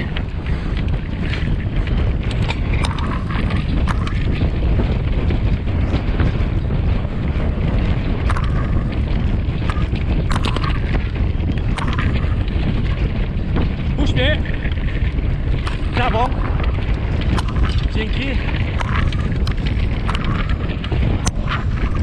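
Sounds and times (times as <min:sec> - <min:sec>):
bike clicks and rattles: 0:00.0 - 0:22.0
wind buffeting microphone: 0:00.0 - 0:22.0.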